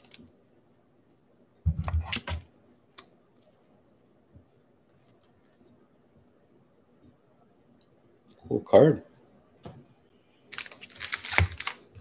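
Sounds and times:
wrapper rustling: 10.5s - 12.0s.

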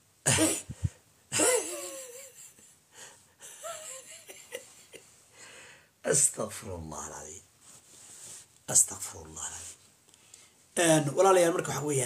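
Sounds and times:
man laughing: 0.3s - 2.8s, 3.4s - 5.1s.

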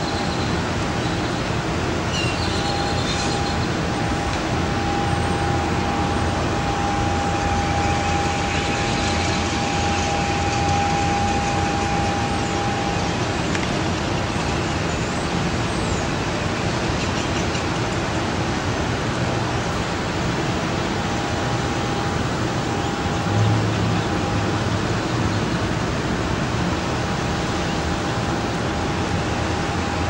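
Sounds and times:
steady rushing noise: 0.0s - 30.0s
thin high tone: 2.0s - 14.9s, 20.3s - 26.0s.

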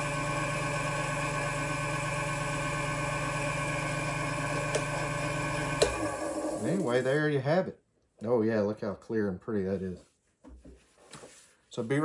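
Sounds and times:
lathe motor humming: 0.0s - 7.0s.

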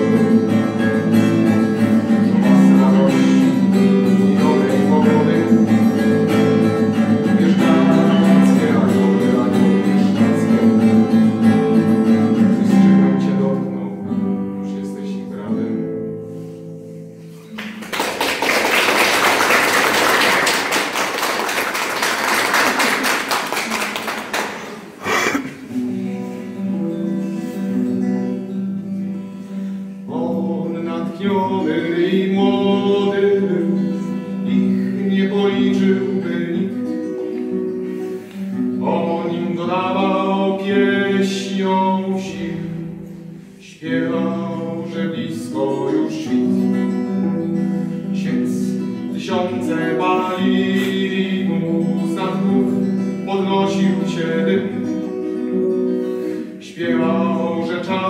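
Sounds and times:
classical guitar playing: 0.0s - 18.2s, 18.8s - 58.0s
applause: 17.5s - 25.0s.

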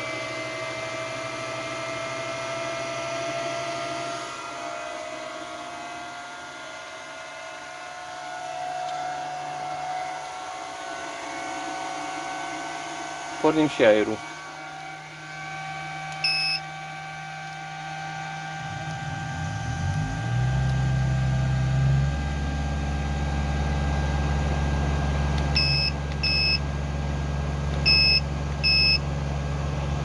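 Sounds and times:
air conditioner motor hum: 3.9s - 30.0s
control panel beeps: 16.2s - 16.7s, 25.6s - 26.6s, 27.8s - 29.0s
electronic beep: 16.2s - 16.7s, 25.6s - 26.6s, 27.8s - 29.0s.

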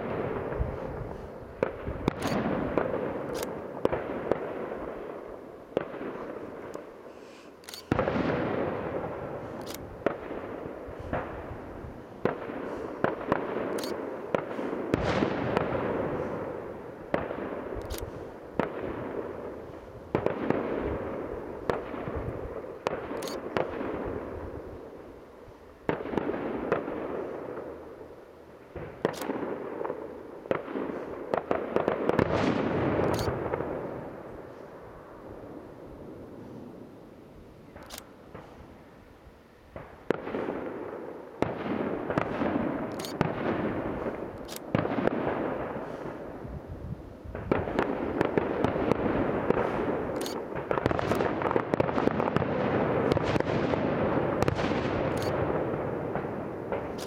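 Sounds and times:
heavy firework booms: 7.9s - 13.7s, 14.3s - 17.7s
firework shells bursting: 41.3s - 46.2s.

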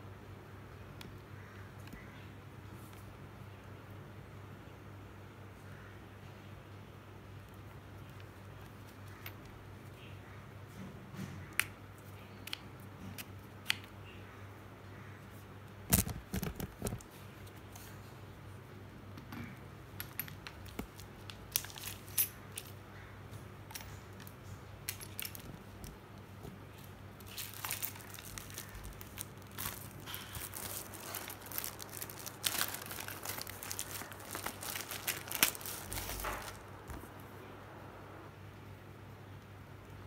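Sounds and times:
plastic bags crinkling: 20.2s - 22.8s, 23.7s - 26.0s, 26.7s - 37.1s.

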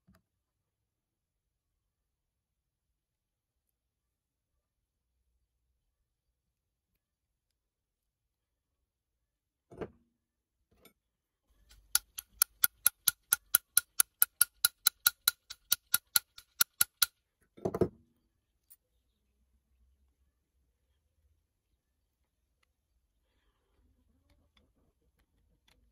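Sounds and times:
hand drill gear clicking: 11.7s - 17.1s.

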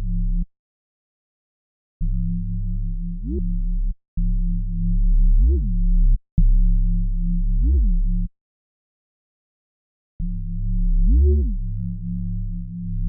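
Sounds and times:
low synth bass notes: 2.0s - 8.3s, 10.2s - 13.0s.

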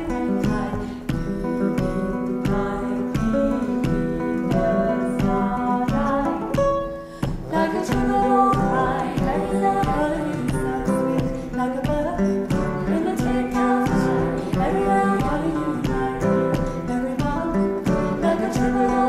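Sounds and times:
plucked guitar: 0.0s - 19.0s
woman singing: 0.0s - 19.0s.

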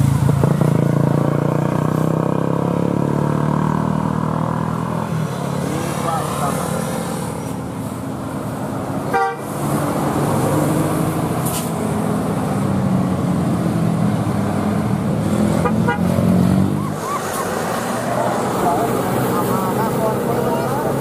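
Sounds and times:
vehicle engines droning: 0.0s - 21.0s
horn toots: 9.1s - 9.6s, 15.6s - 16.2s.

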